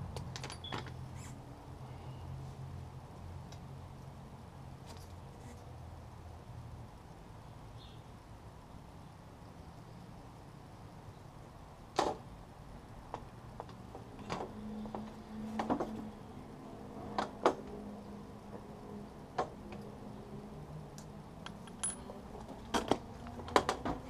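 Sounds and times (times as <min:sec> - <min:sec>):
metallic tool clicks and clinks: 0:21.4 - 0:22.1.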